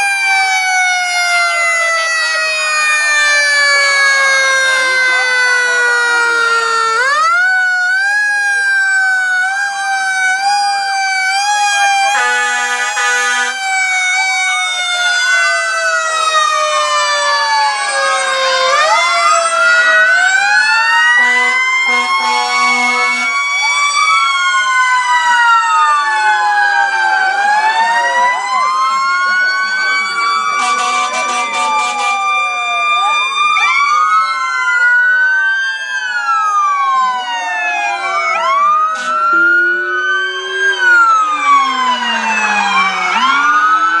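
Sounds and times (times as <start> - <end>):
emergency sirens wailing: 0.0 - 44.0
steady horn blast: 12.1 - 13.6, 21.2 - 23.3, 30.6 - 32.2.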